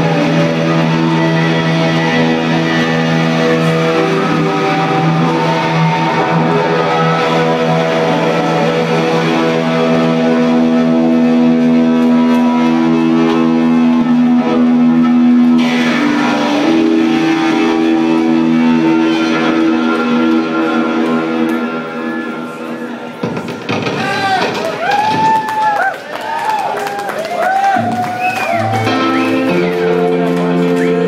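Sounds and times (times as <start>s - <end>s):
electric guitars droning: 0.0s - 25.8s, 27.5s - 31.0s
drum hits: 23.2s - 25.5s.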